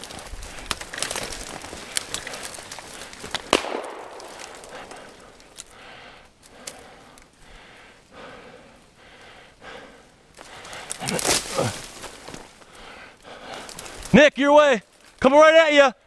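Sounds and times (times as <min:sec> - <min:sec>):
footsteps crunching through snow: 0:00.0 - 0:05.6, 0:10.4 - 0:12.8
twigs snapping: 0:00.0 - 0:05.8, 0:06.4 - 0:07.4, 0:10.3 - 0:14.2, 0:14.9 - 0:15.3.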